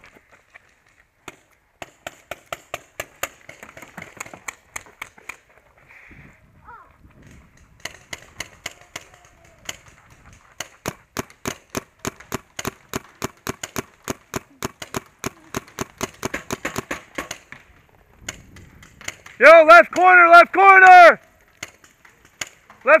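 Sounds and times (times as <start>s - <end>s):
paintball markers firing: 1.2s - 5.5s, 7.2s - 20.1s.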